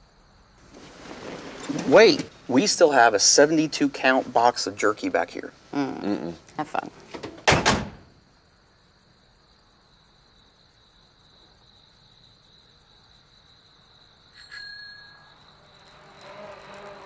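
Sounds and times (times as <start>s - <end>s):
crickets chirping: 0.0s - 17.0s
clear tone ringing: 14.4s - 15.5s.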